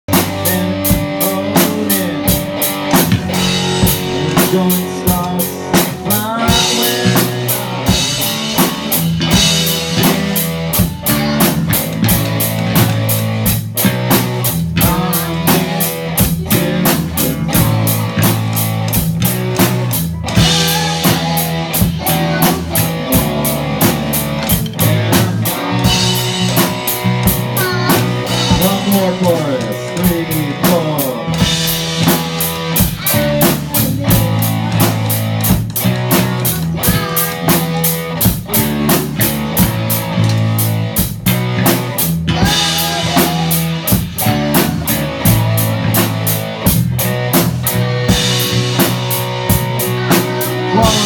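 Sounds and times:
drum kit beat: 0:00.0 - 0:51.0
electric guitar and bass: 0:00.0 - 0:51.0
children singing into microphones: 0:03.5 - 0:13.2, 0:14.5 - 0:40.6, 0:42.3 - 0:45.9.

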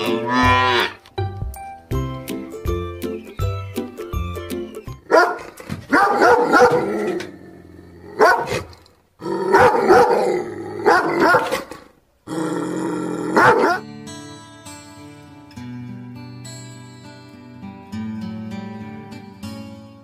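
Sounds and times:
music: 0:00.0 - 0:05.2, 0:13.8 - 0:20.0
dog barking aggressively: 0:05.1 - 0:07.2, 0:08.2 - 0:08.8, 0:09.4 - 0:11.9, 0:13.4 - 0:13.8.

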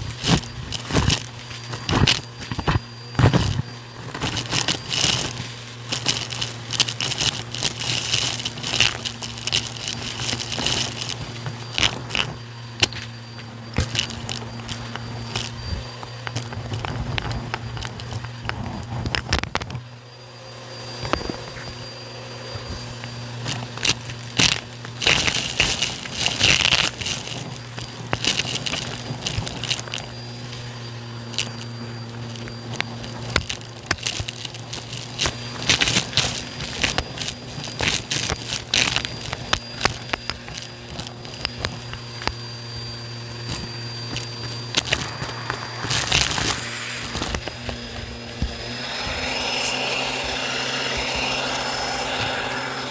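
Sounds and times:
debris crackling in vacuum: 0:00.0 - 0:52.9
vacuum cleaner humming: 0:00.0 - 0:52.9.

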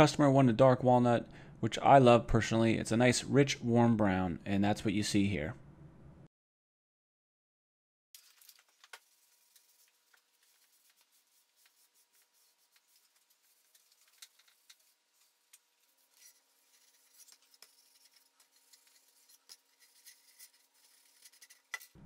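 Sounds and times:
rag scrubbing wood: 0:09.1 - 0:22.0.

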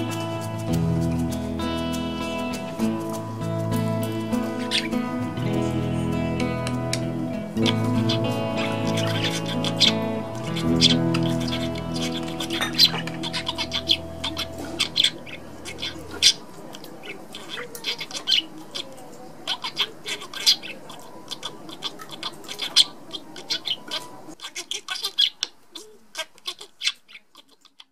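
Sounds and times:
background music: 0:00.0 - 0:16.2
budgerigars chirping: 0:00.0 - 0:27.9.

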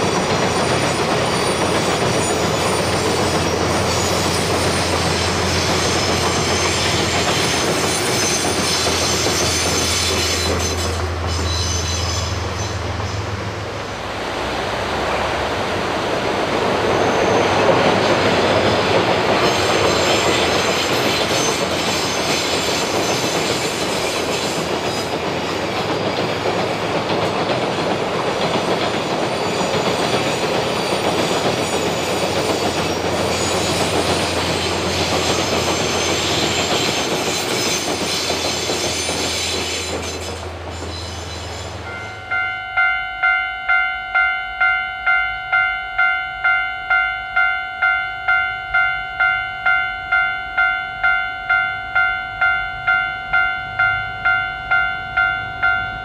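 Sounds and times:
train wheels rumbling on rails: 0:00.0 - 0:45.2
wheels squealing: 0:00.3 - 0:13.4, 0:16.8 - 0:26.8, 0:28.7 - 0:42.4.

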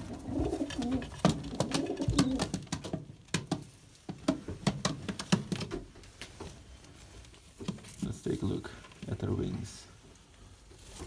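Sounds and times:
pigeons cooing: 0:00.0 - 0:02.6
clicks and scuffling of birds: 0:00.0 - 0:11.0.

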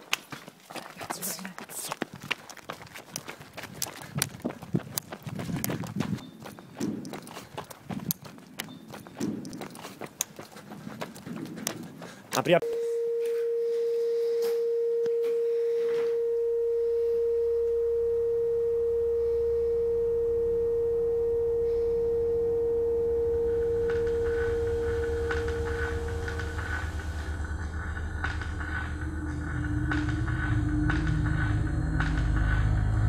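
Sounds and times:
faint higher tone: 0:12.6 - 0:31.8
steady pure electronic tone: 0:12.6 - 0:33.0
low rumble: 0:15.0 - 0:33.0.

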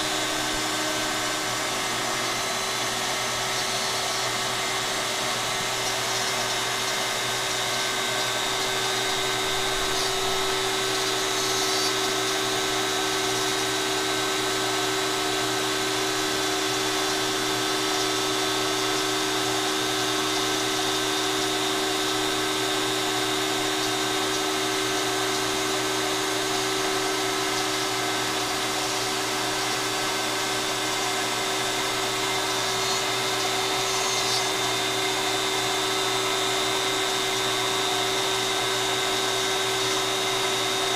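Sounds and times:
router motor whine: 0:00.0 - 0:40.9.

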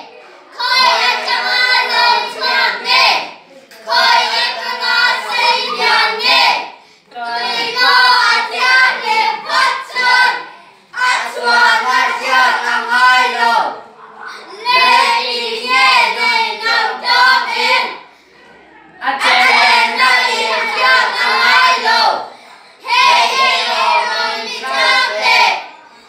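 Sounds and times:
children singing in unison: 0:00.0 - 0:13.9, 0:14.5 - 0:18.1, 0:19.1 - 0:25.8.

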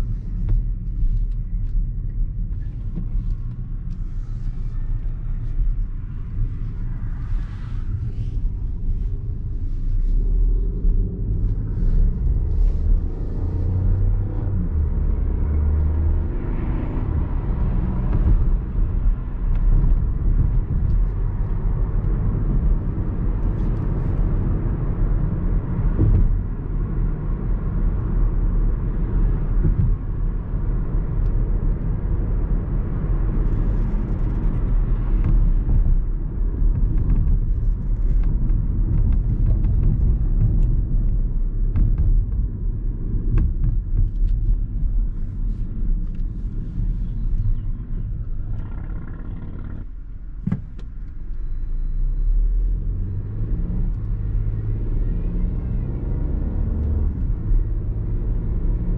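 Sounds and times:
car engine from inside cabin: 0:00.0 - 0:58.9
tyre rumble: 0:33.2 - 0:51.0.

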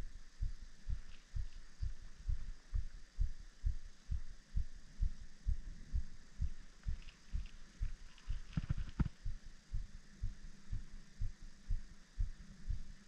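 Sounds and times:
regular low thumps: 0:00.0 - 0:13.0
faint clicks: 0:06.8 - 0:09.2.

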